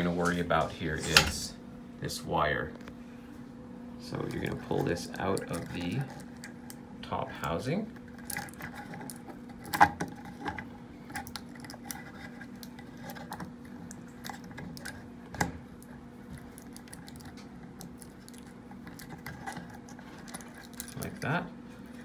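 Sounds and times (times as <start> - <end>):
faint steady hum: 0.0 - 22.0
plastic clicks and scratches: 8.0 - 21.3.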